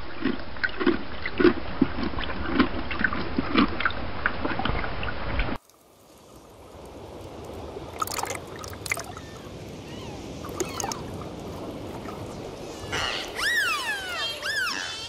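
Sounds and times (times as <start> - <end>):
underwater water noise: 0.0 - 15.0
dolphin whistles: 9.9 - 11.0, 12.8 - 15.0.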